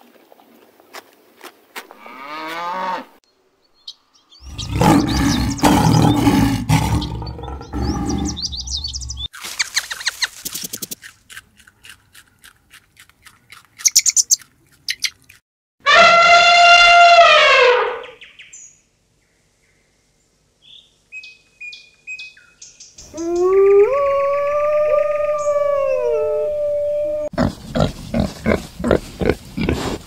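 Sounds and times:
cow mooing: 2.0 - 3.1
birds chirping: 3.3 - 11.0, 13.4 - 15.3
lion roaring: 4.4 - 9.2.

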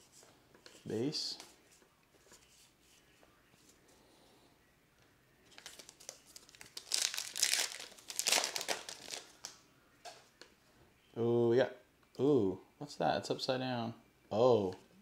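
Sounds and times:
wrapper tearing and crumpling: 5.5 - 9.4.

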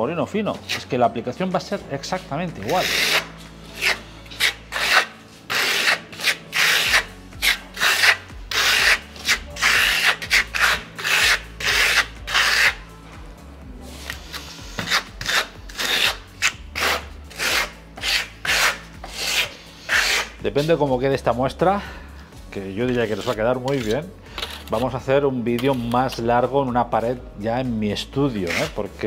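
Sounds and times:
steel trowel scraping: 2.6 - 12.8, 13.9 - 20.7, 22.9 - 25.0, 28.3 - 28.9.

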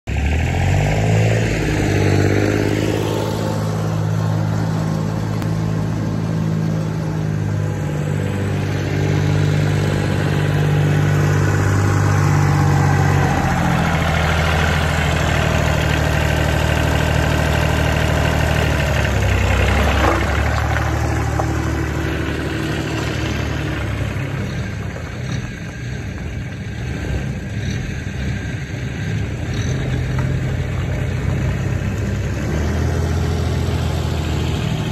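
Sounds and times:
tractor diesel engine: 0.0 - 34.9.

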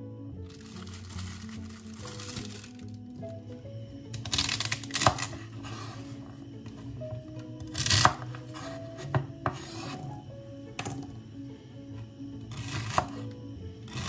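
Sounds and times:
knife cutting celery on a board: 7.7 - 10.1, 12.5 - 13.3.

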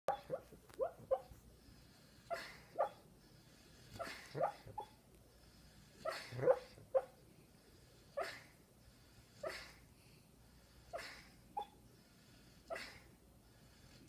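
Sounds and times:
sleeping dog woofing softly: 0.1 - 9.9.

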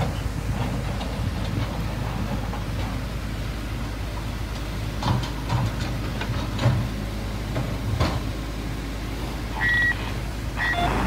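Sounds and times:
motor engine droning: 9.2 - 11.0
short high-pitched tone: 10.6 - 11.0.

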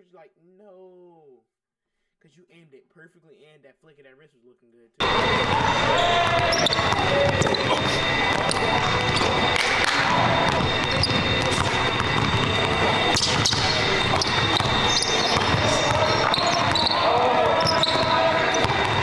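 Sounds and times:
basketball bouncing on hardwood: 5.0 - 19.0.

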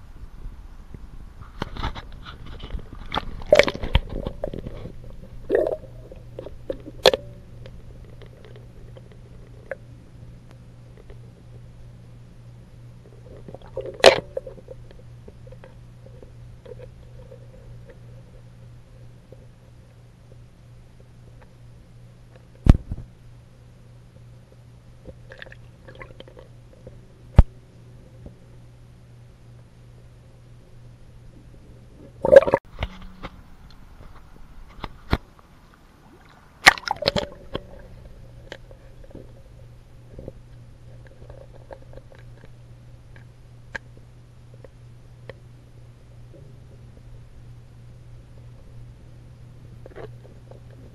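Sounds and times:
low steady hum: 0.0 - 50.9
sharp underwater knocks: 36.6 - 37.9.

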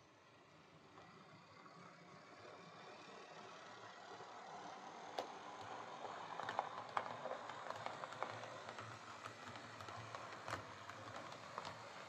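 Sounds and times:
faint motor hum: 0.0 - 12.0
wheels clicking over track: 3.2 - 12.0.

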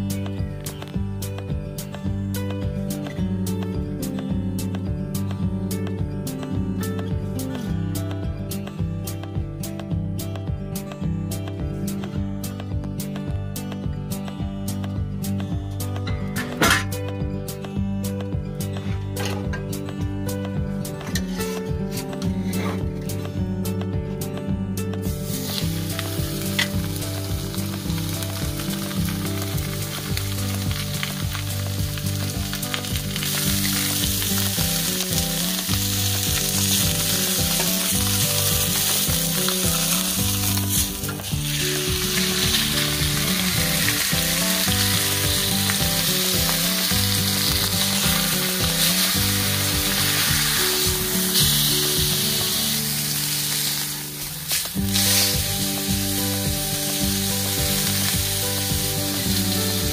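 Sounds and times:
background music: 0.0 - 59.9
meat sizzling on a grill: 25.1 - 59.9.

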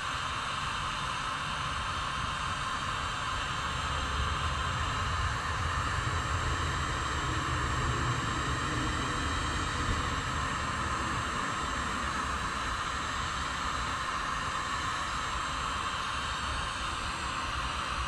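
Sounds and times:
low rumble: 3.5 - 14.4.

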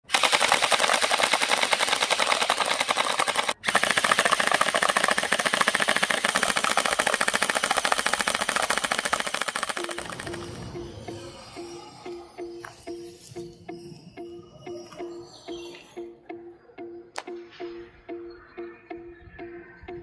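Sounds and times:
gel blasters firing automatic: 0.0 - 11.3.

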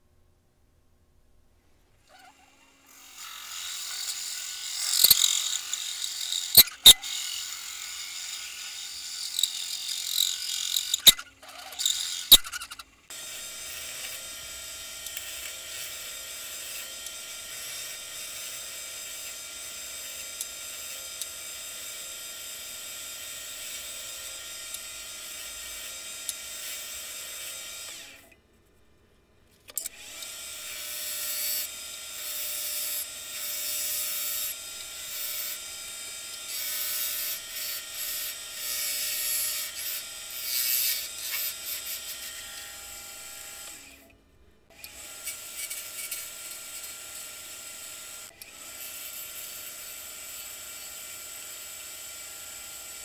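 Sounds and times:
wood lathe whining: 2.1 - 28.2.

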